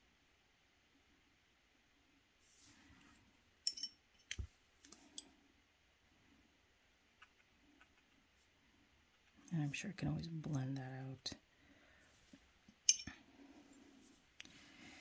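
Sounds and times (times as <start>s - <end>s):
brush stroke on paper: 2.4s - 2.9s.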